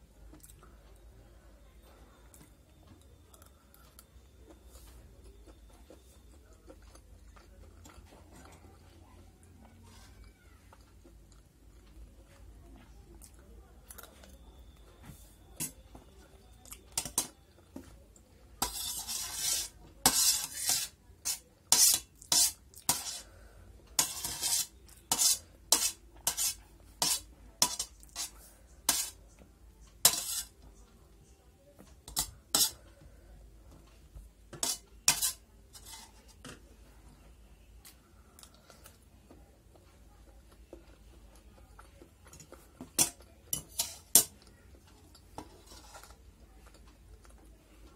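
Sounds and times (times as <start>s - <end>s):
metal spoon scraping a plate: 15.6s - 15.8s, 17.0s - 17.4s, 18.6s - 23.3s, 24.0s - 29.2s, 30.0s - 30.6s, 32.0s - 32.9s, 34.5s - 36.6s, 42.4s - 44.4s, 45.4s - 46.3s.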